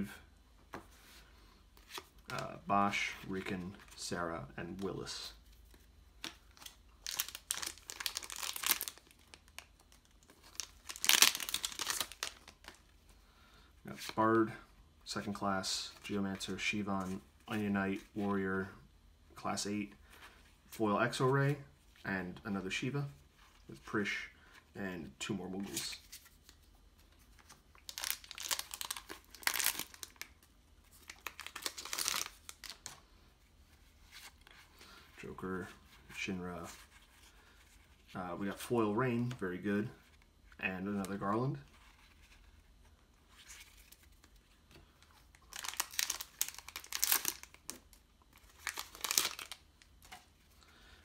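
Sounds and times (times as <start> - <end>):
foil wrapper crinkling: 6.2 - 12.8, 27.8 - 30.4, 31.0 - 32.9, 45.3 - 50.2
foil pack tearing open: 7.0 - 9.2, 27.9 - 30.2, 45.5 - 47.6, 48.6 - 49.6.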